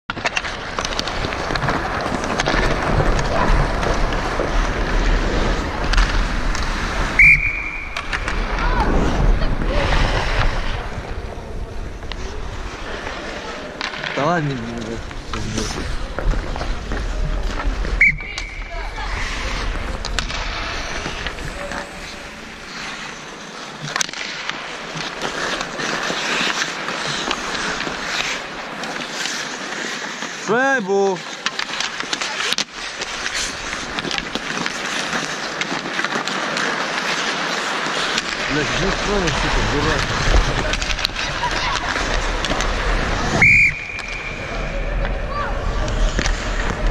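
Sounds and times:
hockey sticks clacking: 0:00.1 - 0:08.9, 0:09.5 - 0:46.9
skates scraping ice: 0:00.1 - 0:46.9
referee's whistle blast: 0:07.2 - 0:07.9.

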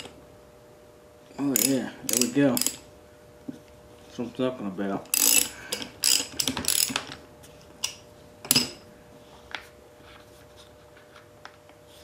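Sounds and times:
socket ratchet clicking: 0:01.5 - 0:02.8, 0:05.1 - 0:07.1.

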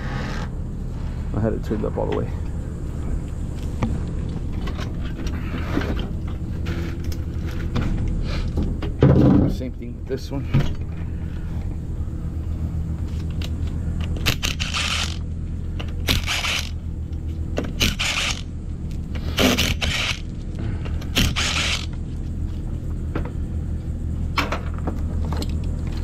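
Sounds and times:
low hum: 0:00.0 - 0:26.0
impact driver bursts: 0:14.3 - 0:15.2, 0:16.0 - 0:16.8, 0:17.8 - 0:18.5, 0:19.4 - 0:20.3, 0:21.2 - 0:22.0.

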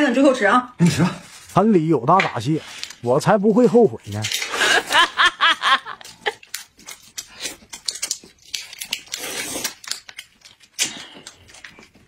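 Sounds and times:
plastic wrapper crinkling: 0:01.0 - 0:12.0
noodles slurped: 0:06.1 - 0:12.0.

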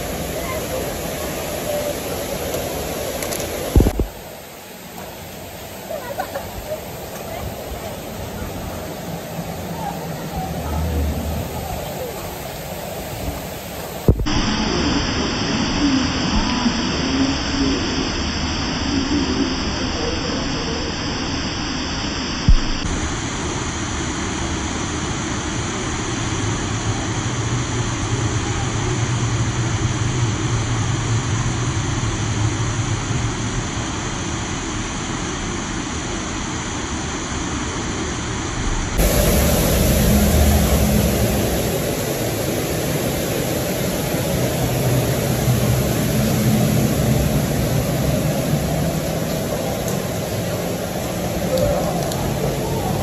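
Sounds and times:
water pouring down waterfall: 0:00.0 - 0:53.0.

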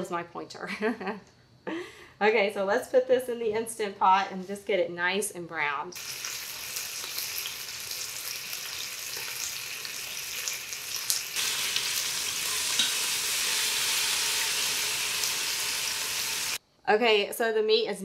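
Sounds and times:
meat sizzling in hot oil: 0:06.0 - 0:16.6.

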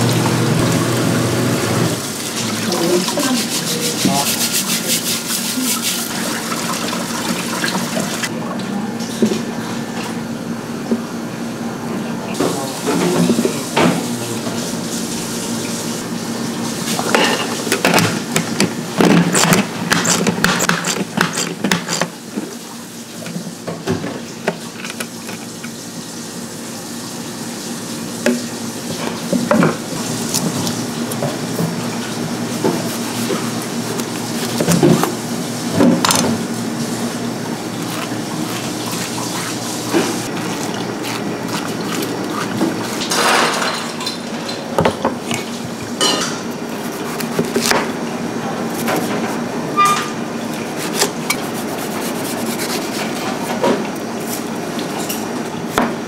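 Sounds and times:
water running in sink: 0:00.0 - 0:08.8, 0:12.3 - 0:48.2
dishes and utensils clinking: 0:17.0 - 0:18.2, 0:43.0 - 0:46.5.

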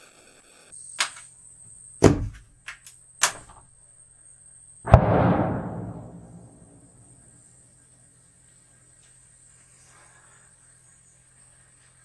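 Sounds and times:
loud knock: 0:04.9 - 0:06.8.

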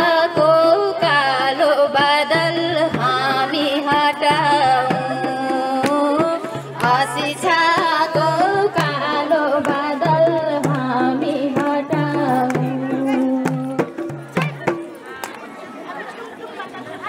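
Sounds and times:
drum beat: 0:02.1 - 0:15.0.

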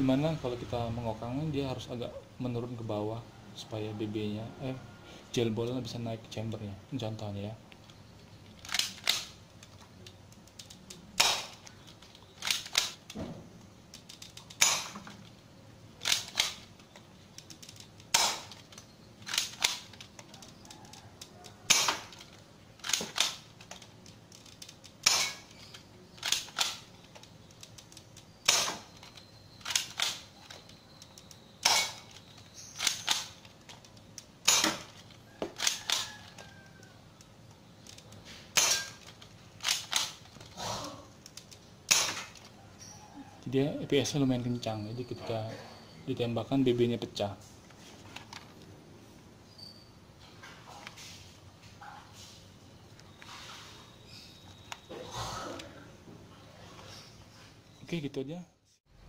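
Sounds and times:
toy blaster firing snaps: 0:11.2 - 0:11.6.

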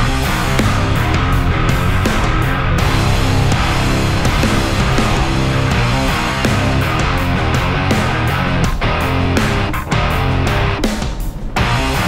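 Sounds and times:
rock music with electric guitar: 0:00.0 - 0:12.0.

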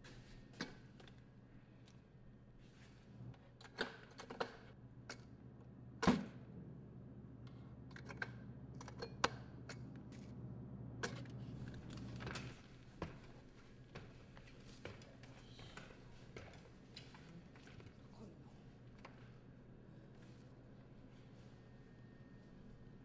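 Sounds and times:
low steady hum: 0:04.7 - 0:23.0.

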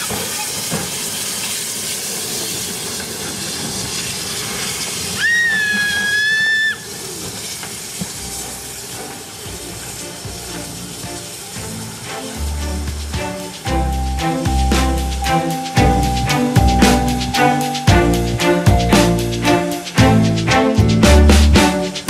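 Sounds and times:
steam locomotive hissing: 0:00.0 - 0:22.0
steam whistle blast: 0:05.2 - 0:08.5.

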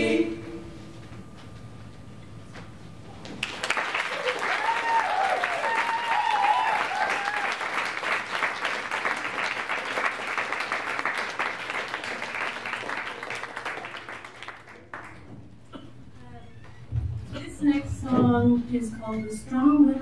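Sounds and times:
audience applauding: 0:03.3 - 0:15.4
people cheering: 0:03.4 - 0:15.2.

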